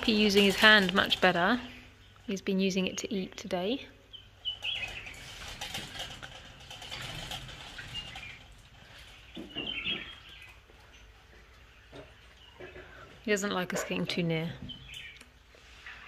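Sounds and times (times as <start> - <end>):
monkey climbing on wire mesh: 0.0 - 1.8, 4.3 - 13.3
bird chirps: 4.1 - 5.4, 9.1 - 11.1.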